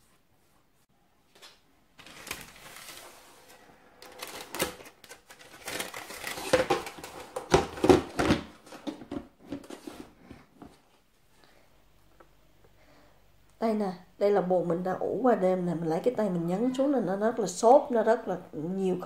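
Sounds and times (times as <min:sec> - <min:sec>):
baking paper rustling: 0:01.3 - 0:10.2
plastic box clicks and knocks: 0:06.2 - 0:09.7.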